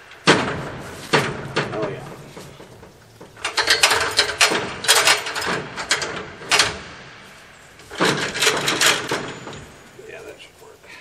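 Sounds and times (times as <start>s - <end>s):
ladder section sliding: 0.0s - 7.0s, 7.8s - 9.8s
ladder rung locks clacking: 3.2s - 6.8s, 7.8s - 9.7s.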